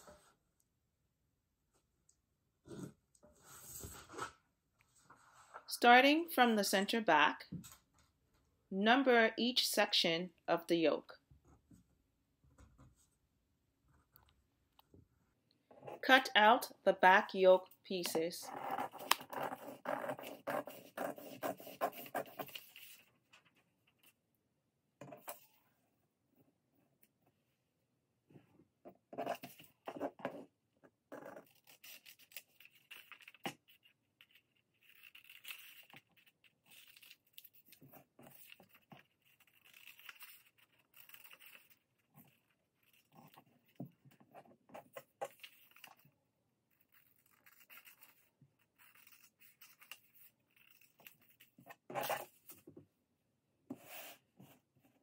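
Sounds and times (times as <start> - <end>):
paper rustling: 21.8 - 24.1
scissors snipping paper: 31.4 - 43.8, 46.8 - 52.3.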